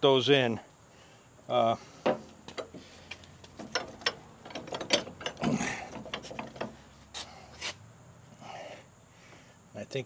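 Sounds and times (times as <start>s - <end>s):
hand tools clicking and knocking on metal: 2.0s - 7.3s.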